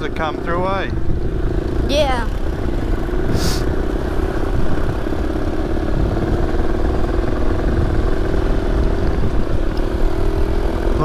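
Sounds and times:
motorbike engine running: 0.0 - 11.0
brief hiss: 3.4 - 3.6.

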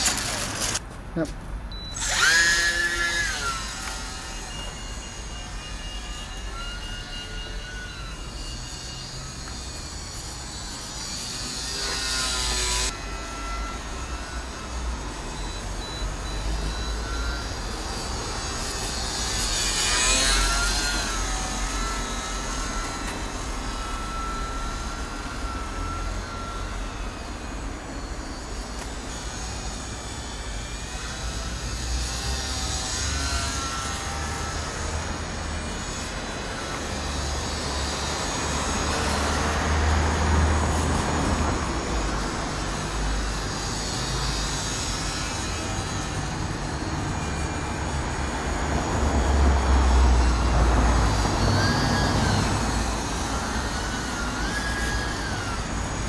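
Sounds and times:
model plane motor whining: 1.9 - 56.0.

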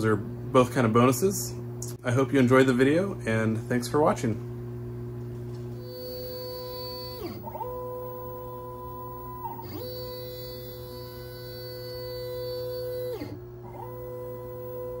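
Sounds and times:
stepper motors whining: 5.8 - 15.0.

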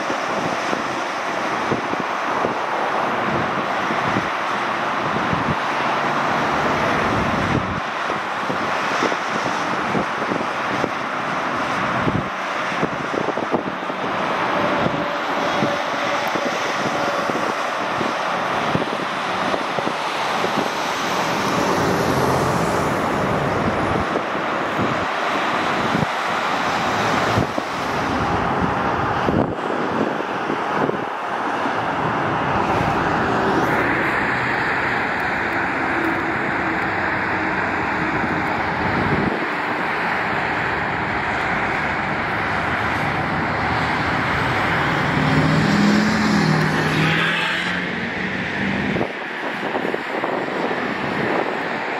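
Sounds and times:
highway traffic: 0.0 - 51.9.

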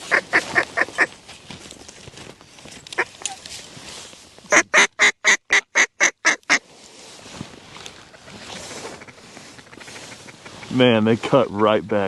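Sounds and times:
duck call quacks: 0.0 - 1.1, 4.5 - 6.6, 8.1 - 10.8.

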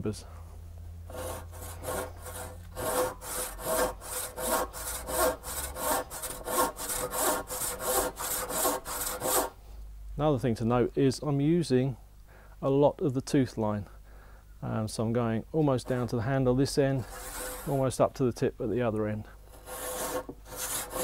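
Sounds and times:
hand saw cutting wood: 1.1 - 9.5, 17.0 - 17.8, 19.5 - 21.0.

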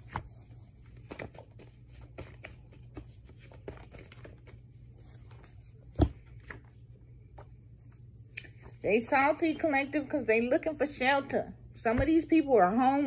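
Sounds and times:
paper cards shuffling: 0.0 - 8.8.

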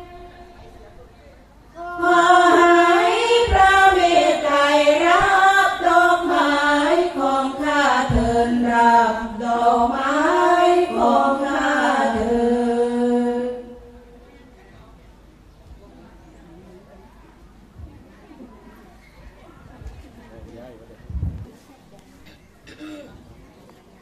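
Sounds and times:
woman chanting: 0.0 - 0.9, 1.8 - 14.2.

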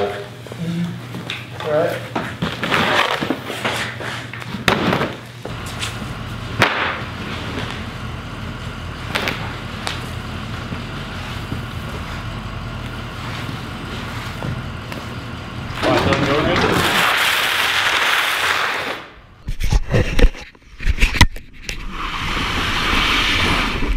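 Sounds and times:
steady low hum: 0.0 - 18.1
sharp bangs: 4.7 - 10.4.

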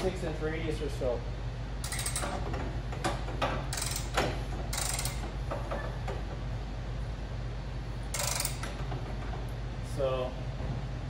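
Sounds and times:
metal arm clanking and rattling: 1.9 - 6.0, 8.2 - 9.1.

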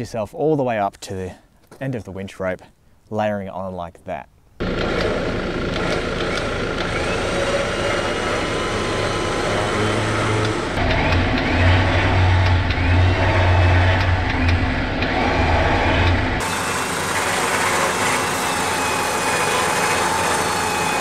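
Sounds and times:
truck engine idling: 4.6 - 20.9
electric winch winding rope: 4.6 - 21.0.

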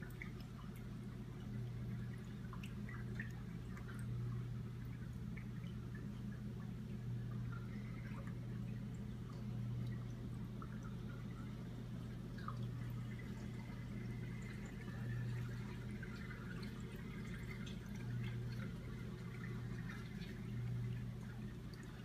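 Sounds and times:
low pump hum: 0.0 - 22.0
water trickling and dripping: 0.0 - 22.0.

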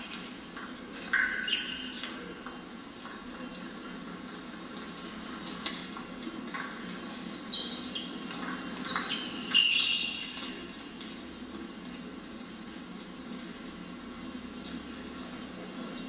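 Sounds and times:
sports shoes squeaking: 1.1 - 2.3, 7.1 - 11.0.

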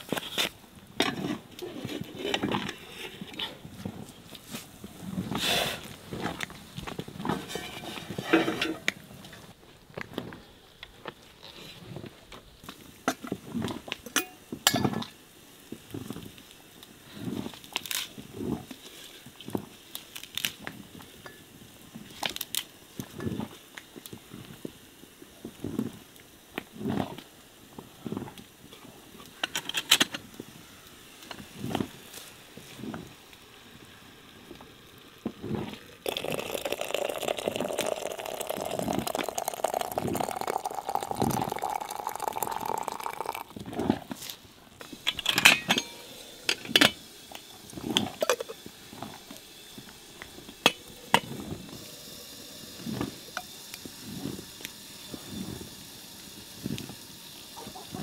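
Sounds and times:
pots and utensils clinking: 1.0 - 3.6, 7.3 - 9.0, 14.1 - 15.1, 44.9 - 47.0, 47.8 - 49.2
liquid pouring into container: 35.4 - 44.2.

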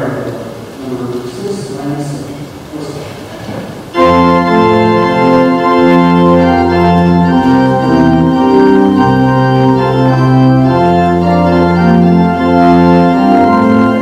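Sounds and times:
organ playing sustained chords: 3.9 - 14.0.

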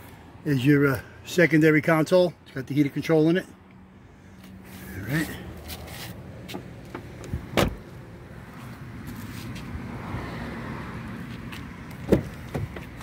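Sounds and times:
traffic noise: 0.0 - 13.0
car door shutting: 6.5 - 7.9, 12.0 - 13.0.

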